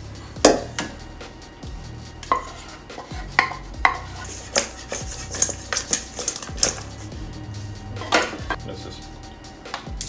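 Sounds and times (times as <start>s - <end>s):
metal bowl knocks and clangs: 2.2s - 6.8s, 8.0s - 8.6s.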